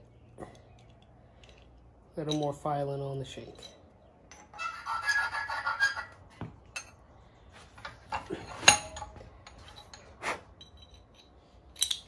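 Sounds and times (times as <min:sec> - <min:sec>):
steel scraping on steel: 0:04.4 - 0:06.3
metallic clinks: 0:07.8 - 0:12.0.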